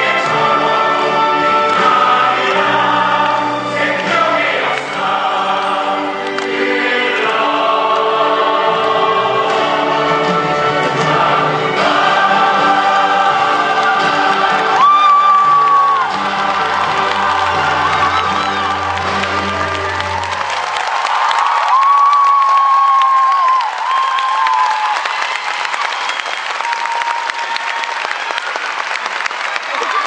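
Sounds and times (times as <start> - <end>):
cast singing in chorus: 0.0 - 19.6
musical accompaniment: 0.0 - 21.4.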